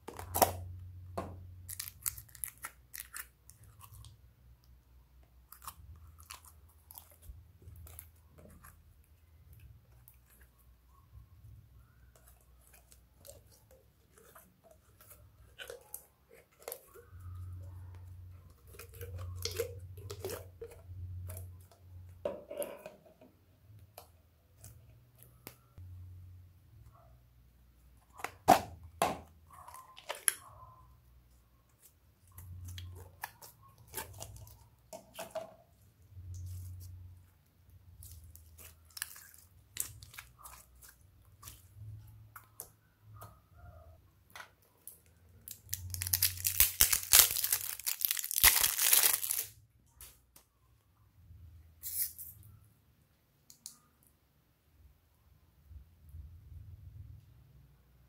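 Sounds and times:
crinkly tearing slime crackle: 1.6s - 4.2s, 18.5s - 21.5s, 31.7s - 35.2s, 38.0s - 41.8s, 44.8s - 50.1s
hands handling slime: 28.0s - 43.4s, 44.3s - 50.5s.

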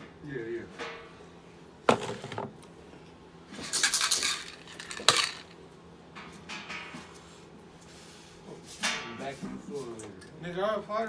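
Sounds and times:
metal tins clinking and rattling: 3.6s - 5.6s.

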